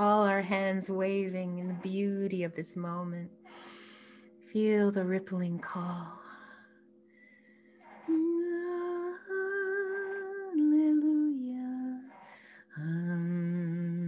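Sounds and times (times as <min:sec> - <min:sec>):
woman singing held tones: 0:00.0 - 0:03.4, 0:07.9 - 0:14.0.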